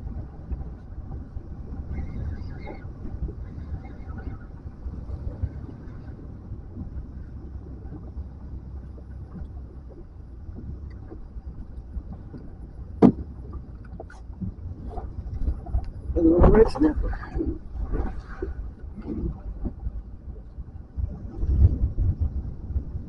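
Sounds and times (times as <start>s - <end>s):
choppy water around boat: 0.0s - 23.0s
wind rumble: 0.0s - 23.0s
faint ticks: 8.8s - 12.7s.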